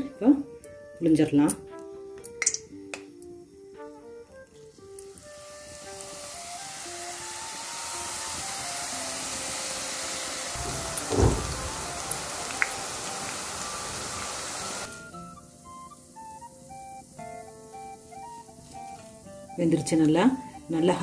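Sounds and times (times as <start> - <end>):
dough sizzling in hot oil: 4.6 - 21.0
dull thump: 10.6 - 12.0.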